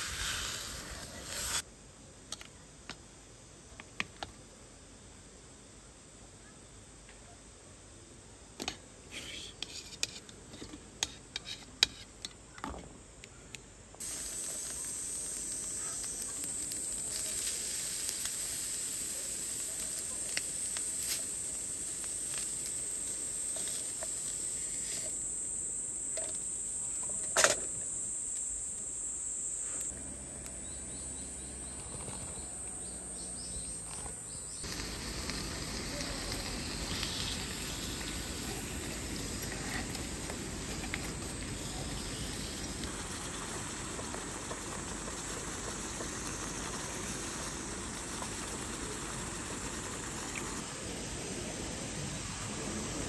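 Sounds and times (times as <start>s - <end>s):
gas stove burner hissing: 0.0s - 1.6s, 14.0s - 53.0s.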